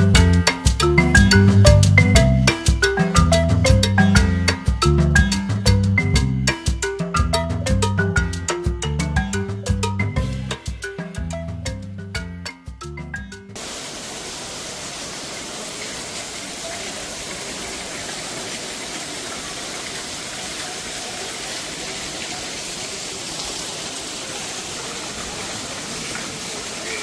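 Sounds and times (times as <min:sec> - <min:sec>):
marimba and drums music: 0:00.0 - 0:13.6.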